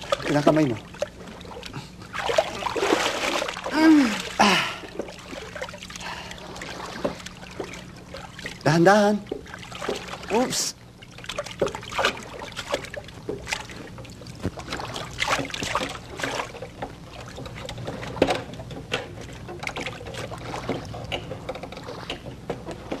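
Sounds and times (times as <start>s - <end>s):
steady low hum: 0.0s - 23.0s
water splashing around boat: 0.0s - 23.0s
knocks and bumps in boat: 6.7s - 10.4s, 11.3s - 23.0s.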